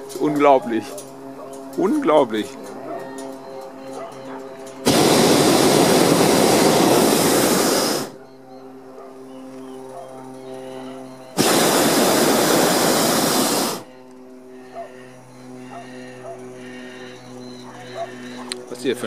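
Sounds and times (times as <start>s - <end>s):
propane burner blast: 4.8s - 8.2s, 11.3s - 13.9s.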